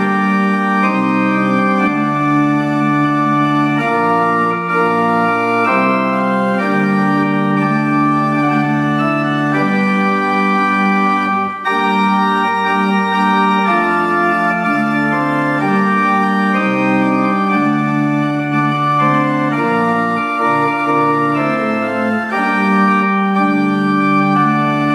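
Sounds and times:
pipe organ chords: 0:00.0 - 0:24.9.

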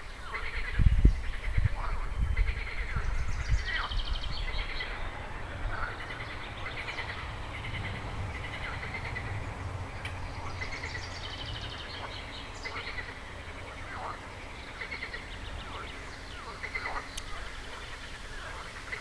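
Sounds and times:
bird calls: 0:00.0 - 0:19.0
frogs trilling: 0:00.0 - 0:19.0
low rumble: 0:00.8 - 0:14.6.

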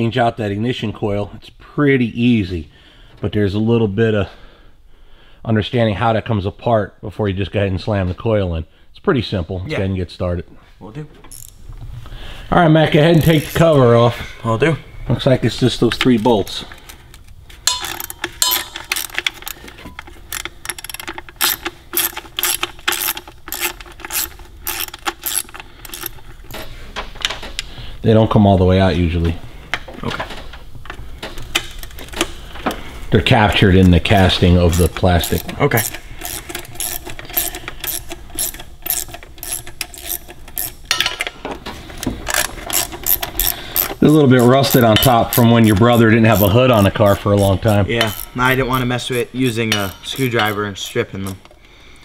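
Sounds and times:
socket ratchet clicking: 0:11.3 - 0:11.6, 0:13.0 - 0:13.7, 0:16.0 - 0:26.7, 0:33.8 - 0:41.1, 0:42.0 - 0:51.5.

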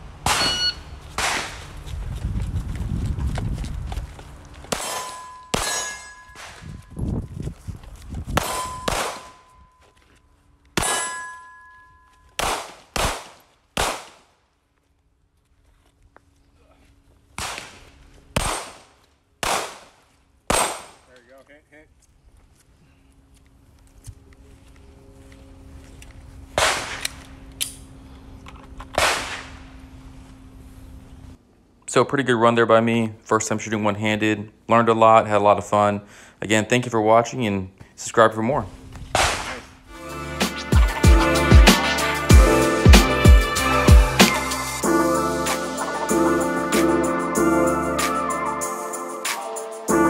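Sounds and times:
steel target ringing: 0:00.2 - 0:00.9, 0:04.8 - 0:06.6, 0:08.4 - 0:09.7, 0:10.8 - 0:12.1
handgun shots: 0:08.4 - 0:09.4, 0:12.4 - 0:14.2, 0:18.4 - 0:19.9, 0:20.5 - 0:21.0, 0:39.2 - 0:39.7
pistol shots with echo: 0:08.4 - 0:09.4, 0:19.4 - 0:19.9, 0:20.5 - 0:21.0.

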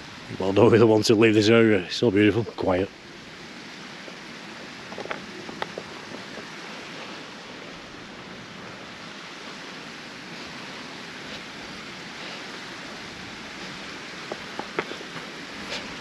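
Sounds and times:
running water rushing: 0:00.0 - 0:16.0
faint ticks: 0:04.0 - 0:06.5.

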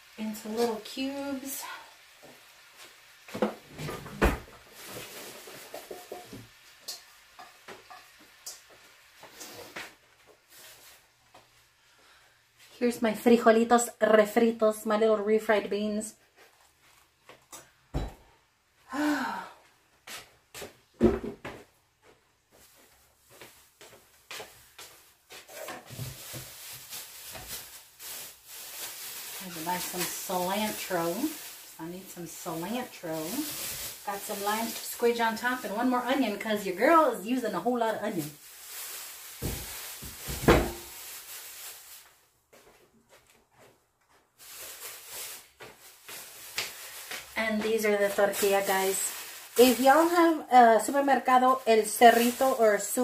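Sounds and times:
plastic bag rustling: 0:04.0 - 0:06.6, 0:08.8 - 0:11.4, 0:22.4 - 0:42.5, 0:44.1 - 0:53.0.

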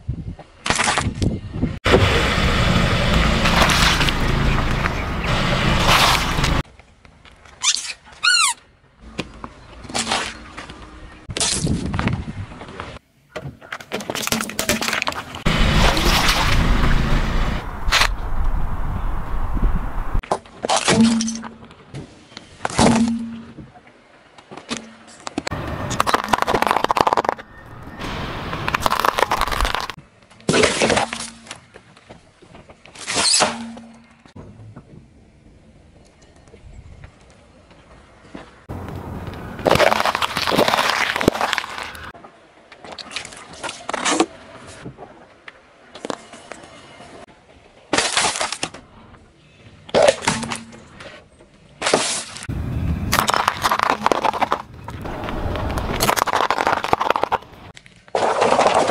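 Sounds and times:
candy canes cracking under tyre: 0:25.6 - 0:27.8, 0:28.7 - 0:30.0, 0:39.6 - 0:42.1, 0:53.1 - 0:58.9.

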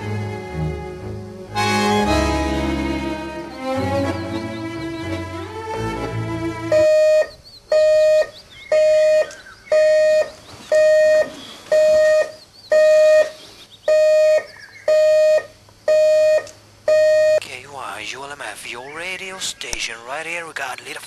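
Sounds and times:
alarm clock beeping: 0:06.7 - 0:17.4.

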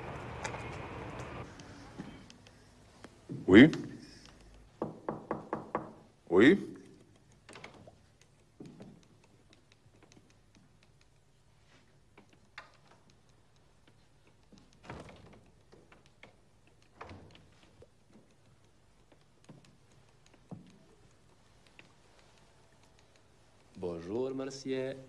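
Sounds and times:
door opening and shutting: 0:14.8 - 0:15.5.

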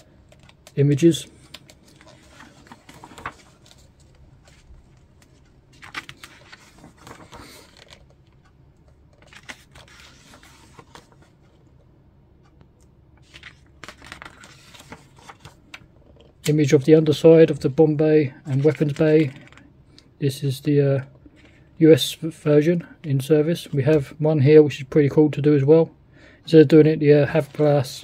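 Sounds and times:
book pages rustling: 0:00.1 - 0:11.8, 0:13.2 - 0:16.8, 0:17.4 - 0:19.7.

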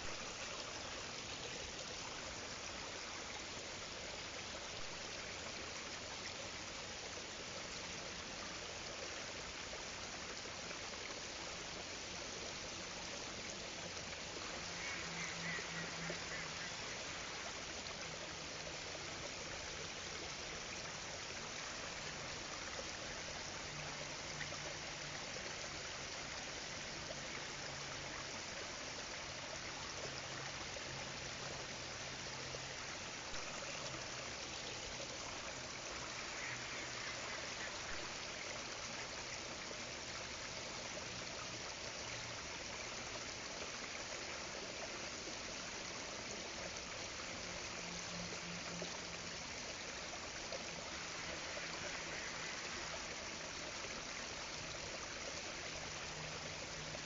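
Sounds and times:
rippling lake water: 0:00.0 - 0:57.0.

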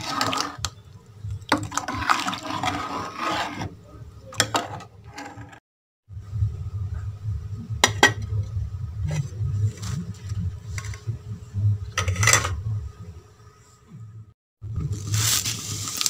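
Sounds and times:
low rumble: 0:06.1 - 0:13.3.

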